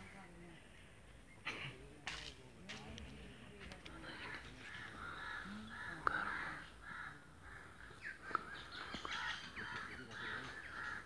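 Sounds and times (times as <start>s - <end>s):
crows cawing: 4.0s - 11.0s.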